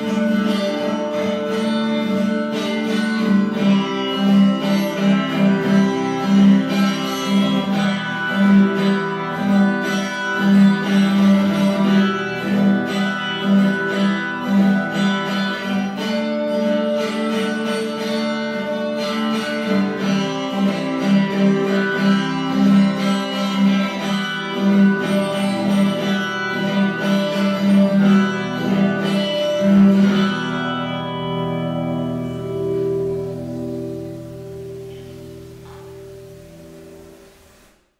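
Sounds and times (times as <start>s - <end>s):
instrumental music with plucked notes: 0.0s - 37.9s.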